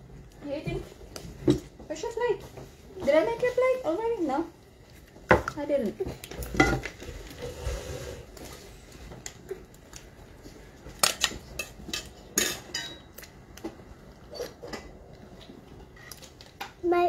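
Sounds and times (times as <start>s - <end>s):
dishes and cutlery clinking: 6.2s - 7.0s, 10.9s - 13.3s.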